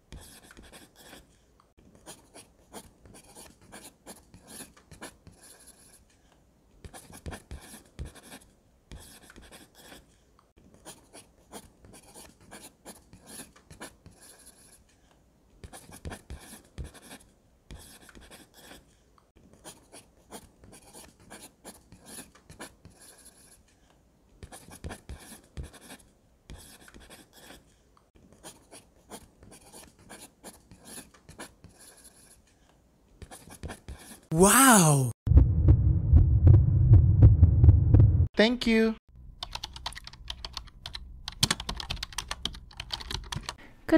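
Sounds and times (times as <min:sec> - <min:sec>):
pencil scratching on paper: 0:00.1 - 0:01.4, 0:02.0 - 0:06.1, 0:06.8 - 0:14.9, 0:15.6 - 0:23.7, 0:24.4 - 0:32.5, 0:33.2 - 0:34.3.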